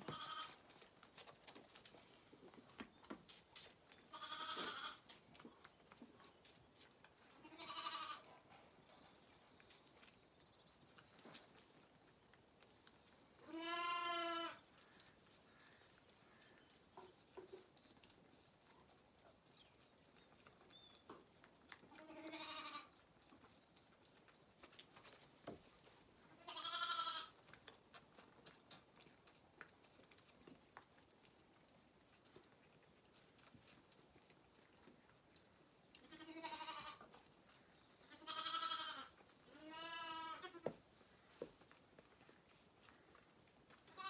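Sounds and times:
lambs bleating: 0:00.0 - 0:00.6, 0:04.1 - 0:05.0, 0:07.4 - 0:08.3, 0:13.4 - 0:14.6, 0:22.0 - 0:22.9, 0:26.4 - 0:27.3, 0:36.1 - 0:37.0, 0:38.1 - 0:40.7
faint rustles and clicks: 0:00.0 - 0:44.0.

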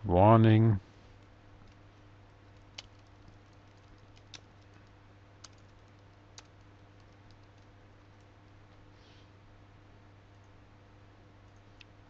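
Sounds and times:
low steady hum: 0:00.0 - 0:12.0
typing on computer keyboard: 0:01.6 - 0:08.3.

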